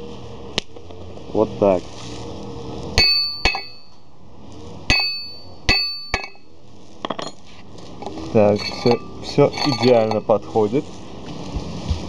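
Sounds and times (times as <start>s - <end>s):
hammer striking metal: 3.0s - 3.9s, 4.9s - 6.5s.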